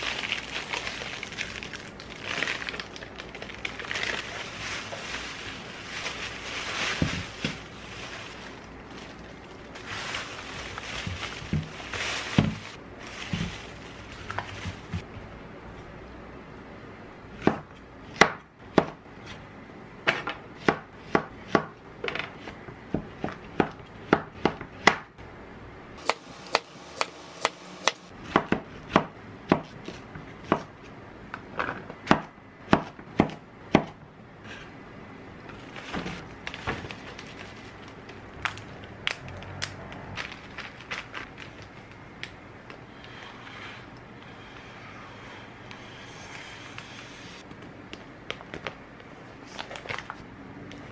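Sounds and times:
zipper bags crinkling: 0:00.0 - 0:15.0, 0:40.1 - 0:42.0
plastic bag rustling: 0:00.0 - 0:15.1, 0:35.6 - 0:39.4, 0:40.0 - 0:42.0.

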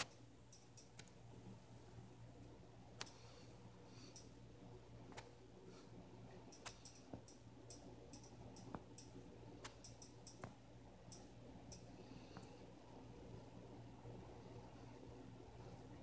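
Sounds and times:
faint clicks and ticks: 0:00.0 - 0:01.2, 0:02.4 - 0:04.4, 0:06.4 - 0:12.6
low steady hum: 0:00.0 - 0:16.0.

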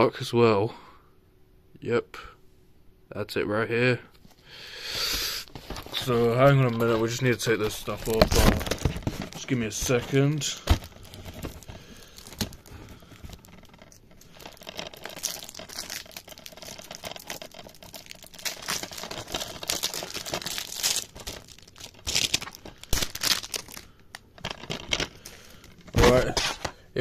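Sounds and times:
plastic wrapping crinkling and tearing: 0:05.4 - 0:26.8.

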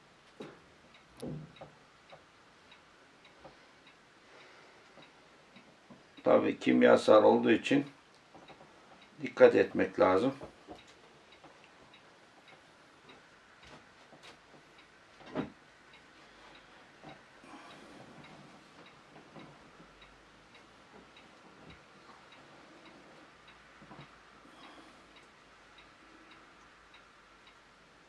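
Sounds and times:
clock ticking: 0:00.1 - 0:28.0
soft handling noises: 0:10.1 - 0:24.2.

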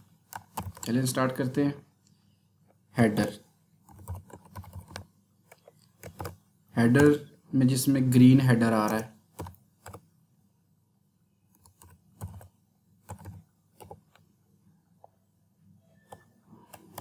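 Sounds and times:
computer keyboard typing: 0:00.2 - 0:01.2, 0:03.8 - 0:07.2, 0:08.6 - 0:10.0, 0:11.5 - 0:14.2, 0:16.0 - 0:17.0.

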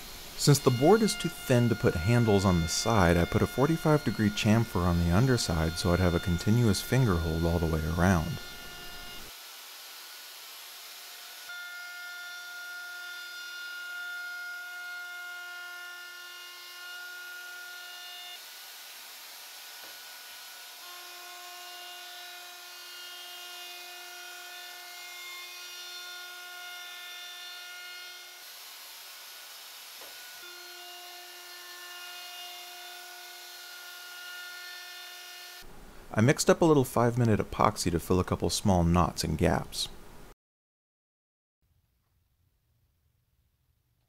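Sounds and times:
bit cutting wood hiss: 0:00.0 - 0:11.5
router high whine: 0:00.0 - 0:11.7.

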